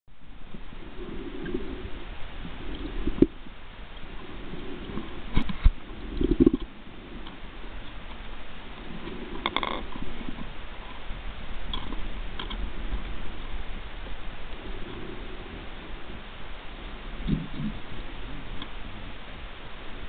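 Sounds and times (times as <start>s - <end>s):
water churning and bubbling: 0.2s - 20.0s.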